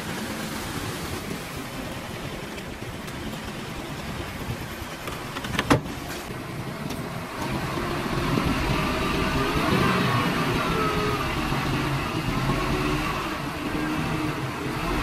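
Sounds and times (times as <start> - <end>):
heavy diesel engine running: 6.0 - 15.0.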